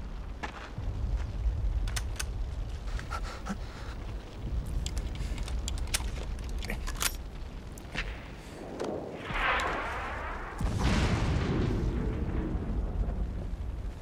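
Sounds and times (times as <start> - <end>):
long low rumble: 0.0 - 14.0
sharp cracks: 0.4 - 3.2, 3.9 - 13.8
artillery explosion: 8.9 - 13.8.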